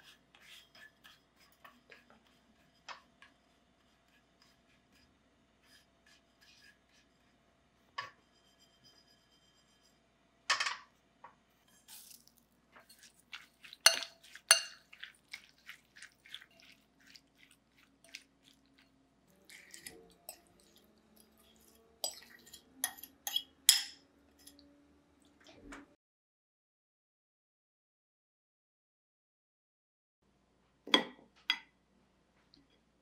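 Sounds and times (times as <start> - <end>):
fork clinking against glass bowl: 11.7 - 18.6, 19.5 - 24.6
seeds shaken in frying pan: 11.7 - 18.9.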